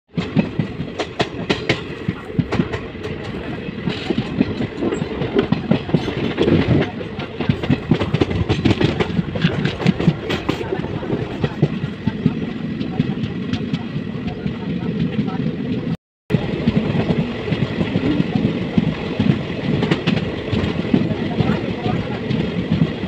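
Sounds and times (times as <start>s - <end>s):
train wheels rumbling on rails: 0.1s - 23.0s
wheels clicking over rail joints: 0.2s - 11.8s.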